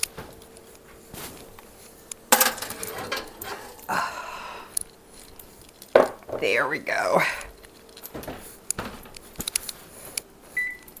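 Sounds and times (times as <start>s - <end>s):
faint steady hum: 0.0s - 11.0s
baking dish scraping rattle: 2.3s - 3.9s
oven door opening: 2.5s - 3.8s.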